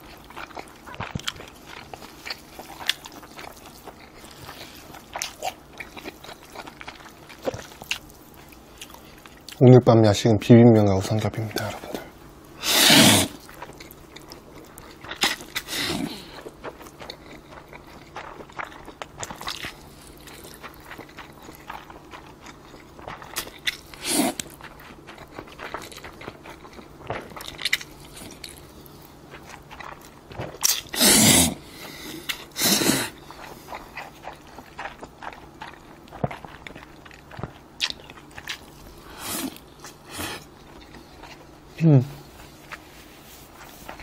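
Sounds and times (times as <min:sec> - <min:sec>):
wet chewing: 0:00.0 - 0:09.7, 0:11.0 - 0:44.0
person slurping noodles: 0:12.6 - 0:13.4, 0:15.3 - 0:16.4, 0:24.0 - 0:24.5, 0:30.6 - 0:33.2, 0:39.0 - 0:40.5.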